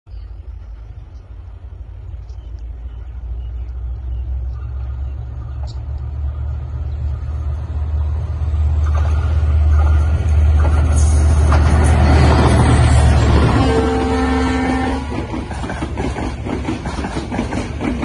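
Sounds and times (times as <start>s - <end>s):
diesel locomotive engine rumble: 0.1s - 18.0s
train clatter and hiss: 8.8s - 13.6s, 14.9s - 18.0s.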